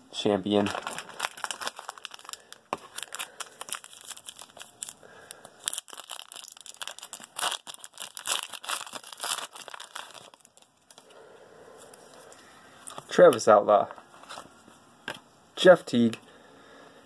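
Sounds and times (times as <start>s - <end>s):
foil wrapper crinkling and tearing: 0.5s - 11.1s.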